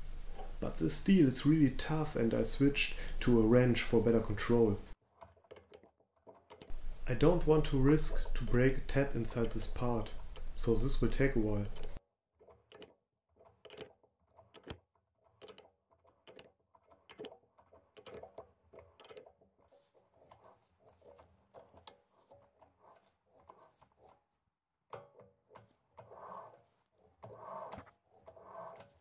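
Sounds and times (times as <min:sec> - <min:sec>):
hand tap clicking and creaking: 0:05.3 - 0:12.0, 0:13.6 - 0:19.4, 0:24.9 - 0:26.4.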